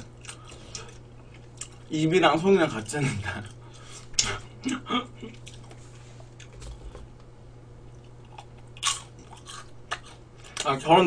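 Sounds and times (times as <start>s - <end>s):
chewing and biting: 0.0s - 1.9s, 7.9s - 10.7s.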